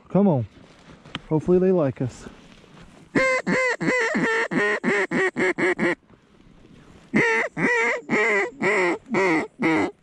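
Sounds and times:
duck call quacks: 3.2 - 6.0, 7.1 - 10.0.

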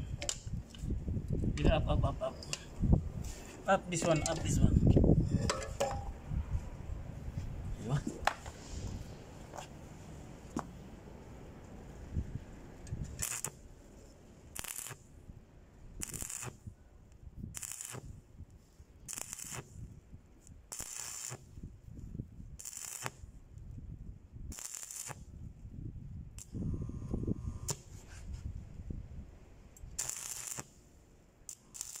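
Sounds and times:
welding arc crackling and sputtering: 13.0 - 13.6, 14.5 - 15.1, 16.0 - 16.6, 17.5 - 18.2, 19.1 - 19.8, 20.7 - 21.6, 22.6 - 23.2, 24.5 - 25.3, 29.8 - 30.8, 31.5 - 32.0.

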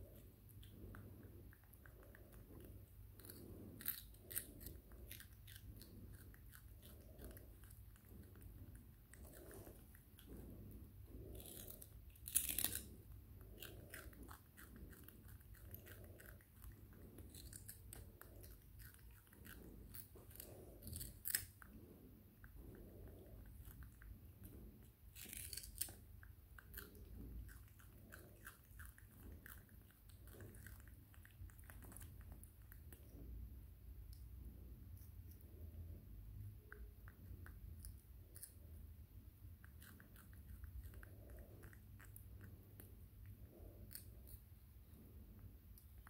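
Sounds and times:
monkey chewing cucumber: 11.3 - 21.7.

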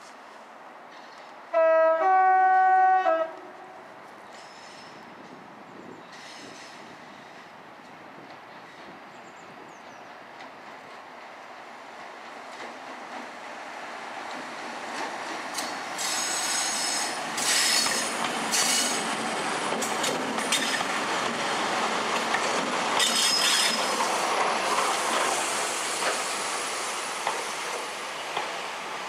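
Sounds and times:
diesel locomotive passing: 10.0 - 29.0
train wheels clicking over rail joints: 14.2 - 28.7.

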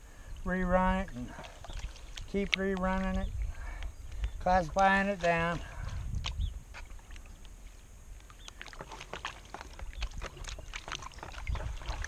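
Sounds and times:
water sloshing in a plastic pan: 1.2 - 3.5, 5.2 - 12.0
small splashes and ticks: 1.2 - 12.0.

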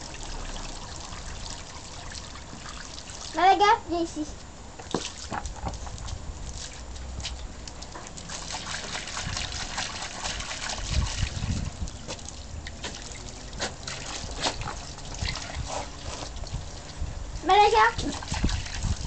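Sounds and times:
dog splashing in water: 4.8 - 17.0, 17.8 - 19.0
dull low thumps: 10.8 - 13.0.

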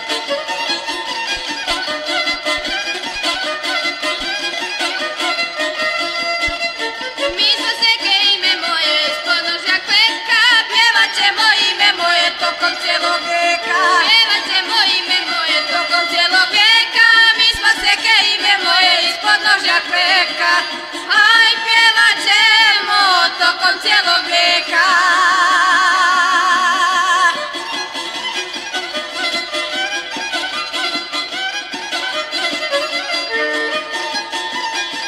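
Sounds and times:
fiddle wavering melody: 0.0 - 35.0
folk band playing: 0.0 - 35.0
voices singing with vibrato: 7.4 - 27.4.

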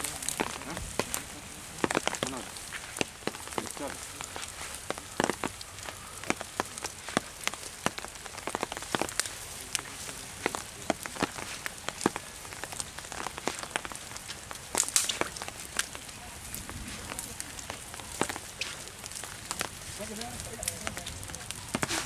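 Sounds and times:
dry grass and twigs crackling: 0.0 - 22.0.

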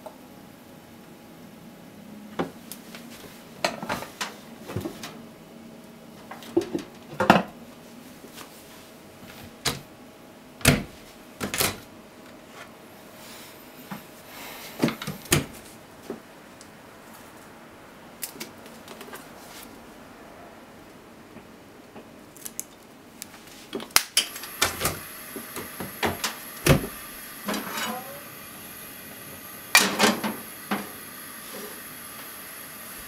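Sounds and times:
faint steady hum: 0.0 - 33.0
dishes and utensils clinking: 27.5 - 28.1.

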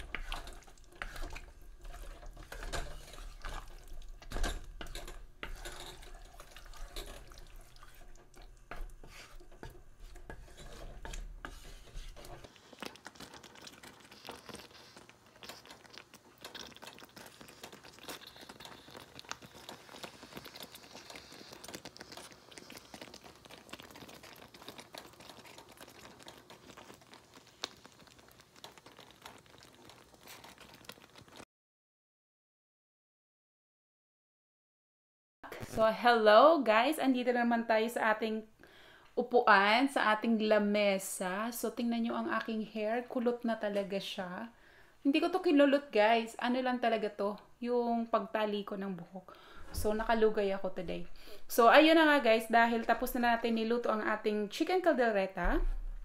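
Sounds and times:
utensil stirring thick stew: 0.0 - 31.4
faint crackling with fine ticks: 12.5 - 31.4.

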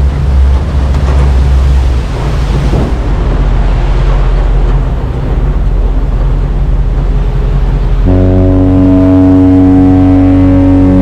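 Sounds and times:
boat engines running: 0.0 - 11.0
rush of water and wind: 0.0 - 11.0
droning multi-pitched hum: 5.0 - 11.0.

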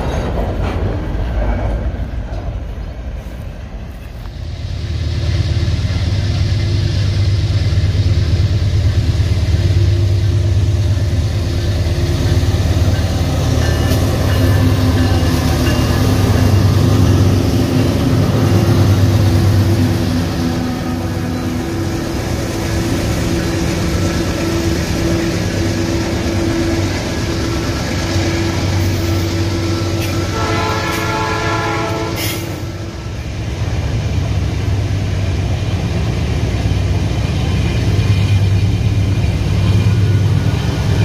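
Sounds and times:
diesel locomotive engines humming: 0.0 - 41.0
train wagons rolling on rails: 0.0 - 41.0
locomotive horn: 28.9 - 32.8.

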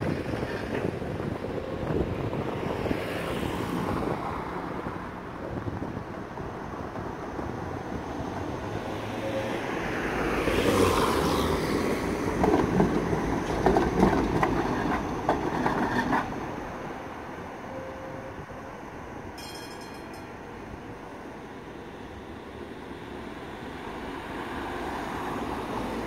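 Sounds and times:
tram passing: 0.0 - 26.0
wheels clacking over rail joints: 11.6 - 16.9, 19.3 - 20.6.

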